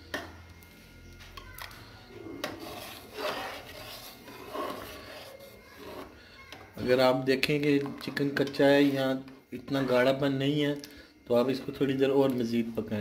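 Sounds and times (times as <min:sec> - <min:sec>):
spoon scraping pot: 0:02.3 - 0:10.2.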